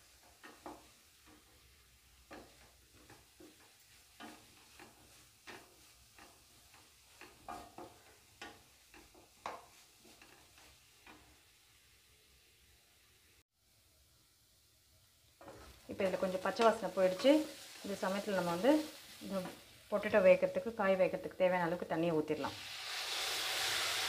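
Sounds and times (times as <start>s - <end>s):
wooden spatula scraping metal pan: 0.0s - 11.6s, 15.4s - 20.3s
faint sizzle: 0.0s - 24.0s.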